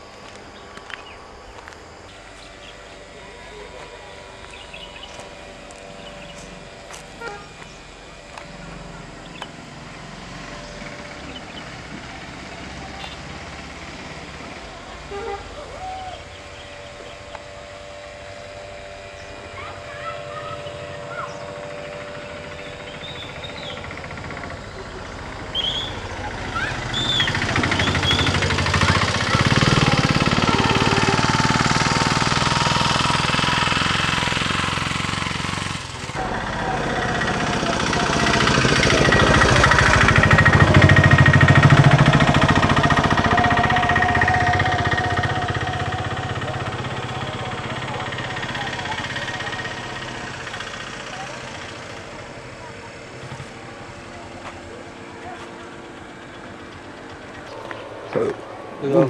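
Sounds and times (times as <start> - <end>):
vehicle engine running: 0.0 - 59.0
high bird chirps: 25.5 - 28.4.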